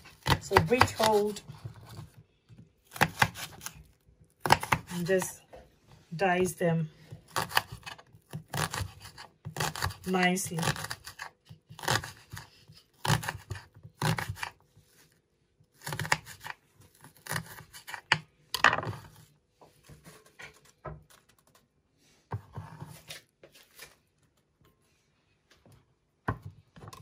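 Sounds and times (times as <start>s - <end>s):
knife chopping on wooden board: 2.9s - 3.8s, 4.4s - 5.1s, 7.3s - 14.6s, 15.8s - 19.0s
knife scraping board: 22.3s - 23.9s.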